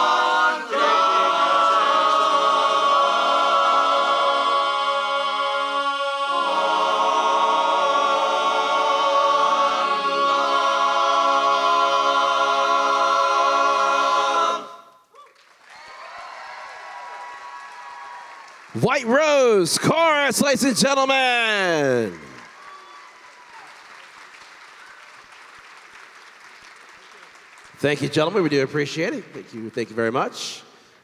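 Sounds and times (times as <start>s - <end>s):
men's chorus singing a cappella: 0.0s - 14.9s.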